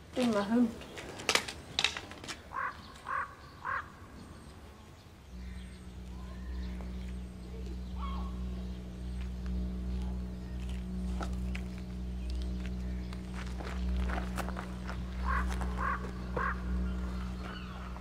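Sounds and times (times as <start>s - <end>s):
low steady drone: 1.4s - 18.0s
crow cawing: 2.5s - 4.1s, 5.4s - 6.8s, 7.9s - 8.4s, 15.2s - 18.0s.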